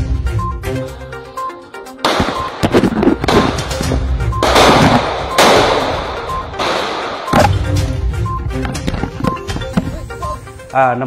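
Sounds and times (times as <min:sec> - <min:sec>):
background music: 0:00.0 - 0:11.0
simulated gunshots with echo: 0:02.0 - 0:02.6, 0:03.3 - 0:07.5.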